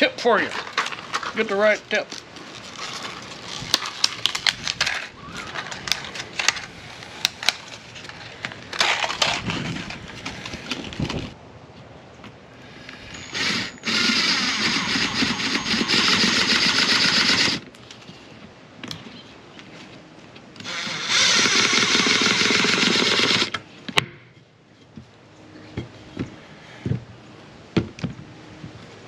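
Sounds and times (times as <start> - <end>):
cordless drill-driver running: 13.3 - 17.6, 20.6 - 23.5.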